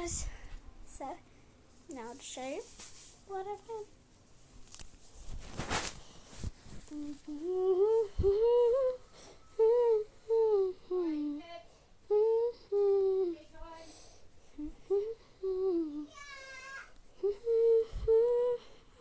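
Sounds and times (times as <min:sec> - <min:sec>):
woman humming: 0:06.8 - 0:13.9, 0:14.5 - 0:16.1, 0:17.2 - 0:19.0.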